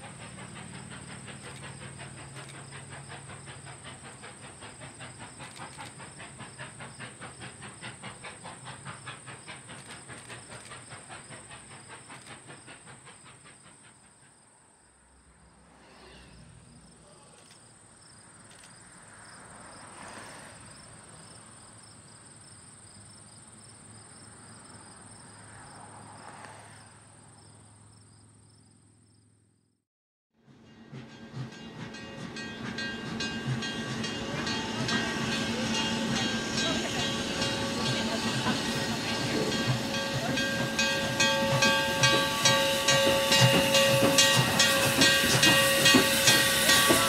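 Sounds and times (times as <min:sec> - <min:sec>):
steam hissing: 0:00.0 - 0:14.4, 0:30.6 - 0:47.0
steam locomotive exhaust chuffs: 0:00.0 - 0:17.6, 0:30.4 - 0:47.0.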